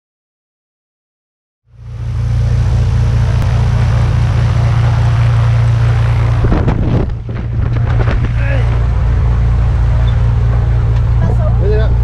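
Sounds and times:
propeller plane engine idling: 1.7 - 12.0
knocks and rustles: 6.5 - 8.8.

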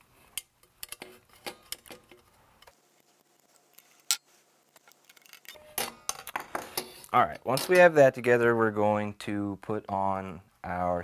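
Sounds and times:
clicks of parts being handled: 0.3 - 2.8.

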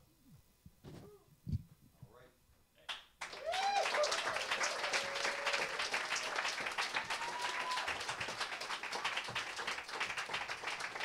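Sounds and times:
audience applauding: 3.2 - 11.0.

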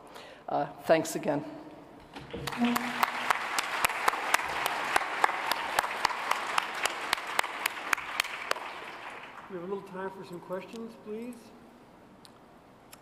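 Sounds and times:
sharp individual claps: 2.2 - 9.6
audience applauding: 2.3 - 10.0.

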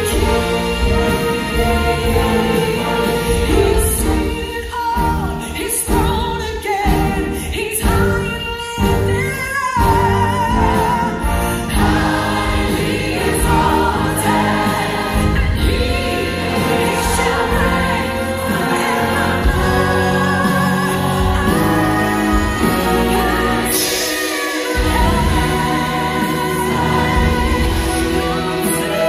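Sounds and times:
church choir singing: 0.0 - 4.6, 10.5 - 29.0
instrumental accompaniment: 0.0 - 29.0.

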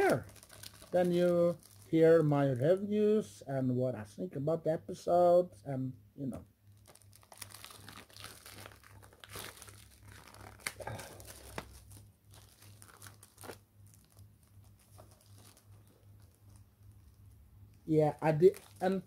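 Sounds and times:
plastic shrink-wrap crinkling: 0.0 - 2.3, 6.6 - 19.0.

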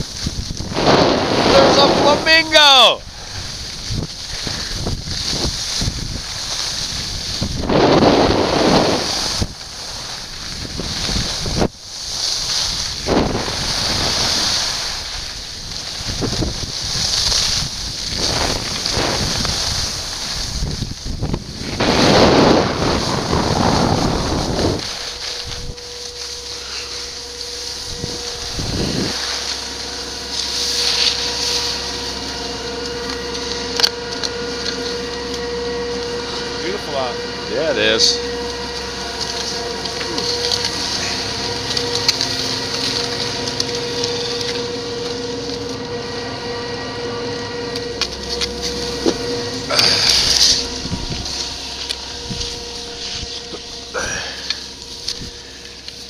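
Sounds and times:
wind rushing over microphone: 0.0 - 25.8, 27.8 - 29.2, 49.2 - 51.4, 52.2 - 53.6
skis sliding on snow: 0.0 - 35.5, 36.2 - 45.6, 47.7 - 56.0
chairlift machinery humming: 0.0 - 56.0.

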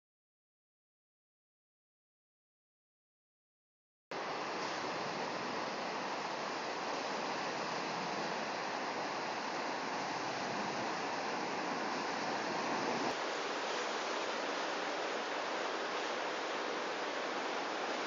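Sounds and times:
water rushing from dam spillway: 4.2 - 18.0.

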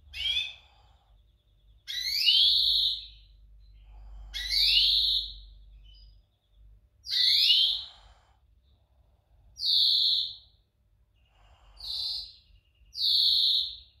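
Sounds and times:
greenfinch wheezy call: 0.1 - 0.8, 4.2 - 5.4.

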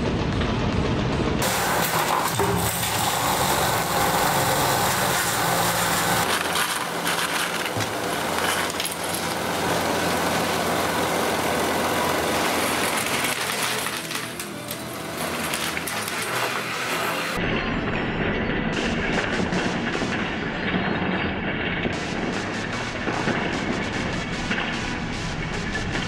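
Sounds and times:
background music: 0.0 - 20.8
plastic bricks clinking: 5.1 - 10.8, 11.7 - 17.4
toy truck clattering on treadmill: 5.9 - 9.6.

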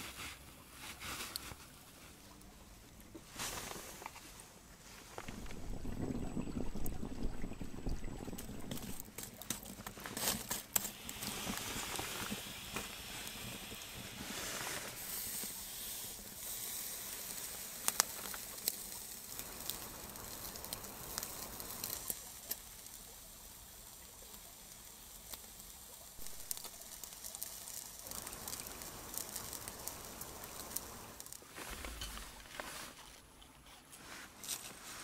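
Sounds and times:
wood fire crackling and popping: 5.0 - 32.8
meat sizzling on a grill: 10.0 - 31.4.

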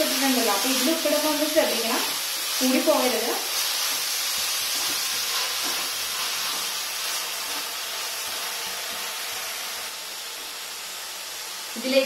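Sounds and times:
onions sizzling in a pan: 0.0 - 12.0.

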